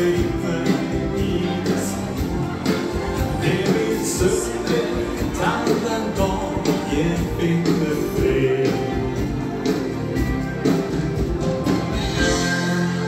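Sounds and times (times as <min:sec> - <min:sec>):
dance band playing live: 0:00.0 - 0:13.0.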